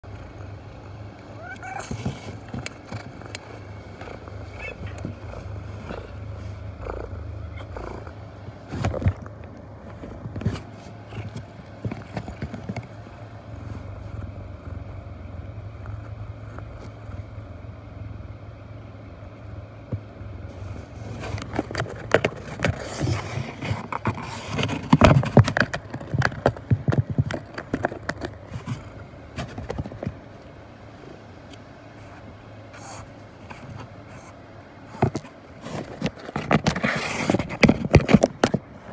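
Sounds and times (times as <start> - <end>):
steady low rumble: 0.0 - 36.0
knocks and scratches on cardboard: 9.9 - 13.0, 21.1 - 30.2, 34.9 - 38.7.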